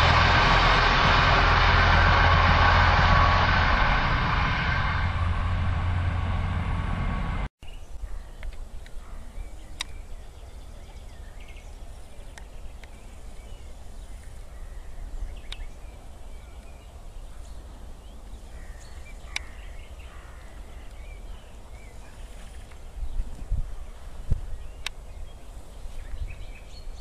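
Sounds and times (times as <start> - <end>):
low rumble: 0.0 - 7.5.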